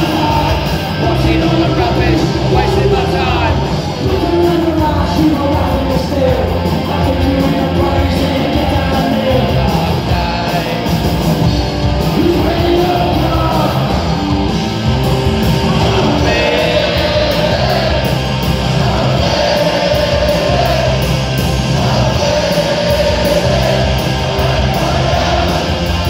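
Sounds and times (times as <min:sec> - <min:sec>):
punk rock band playing: 0:00.0 - 0:26.0
singer shouting: 0:12.0 - 0:14.3.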